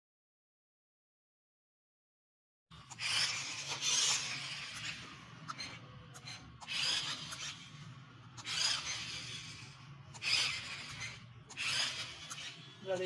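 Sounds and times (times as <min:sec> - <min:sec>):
toy car motor whirring: 0:02.7 - 0:13.0.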